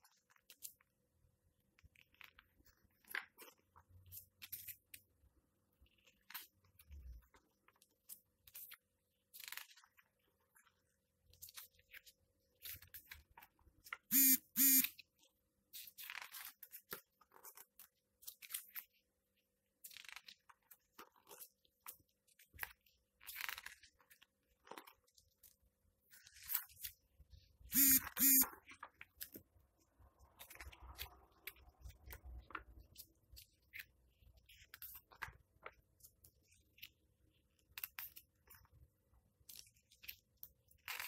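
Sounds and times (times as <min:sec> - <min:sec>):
pages turning: 0:06.0 - 0:10.7, 0:15.8 - 0:19.0, 0:19.8 - 0:27.0
short loud pitched sounds: 0:14.1 - 0:14.9, 0:27.8 - 0:28.4.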